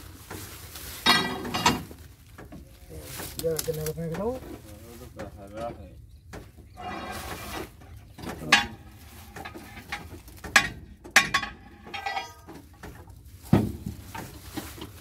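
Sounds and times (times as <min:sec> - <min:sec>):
metal clanks ringing: 0:01.0 - 0:01.9, 0:08.3 - 0:12.6.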